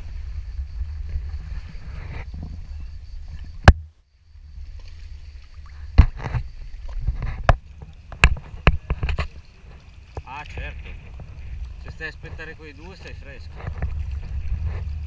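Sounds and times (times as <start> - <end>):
paddle knocking and splashing: 0.0 - 15.0.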